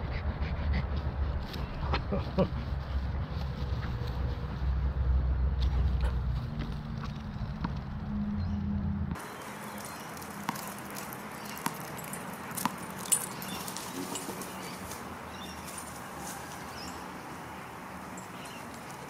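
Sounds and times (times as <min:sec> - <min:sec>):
outdoor background hiss: 0:09.2 - 0:19.0.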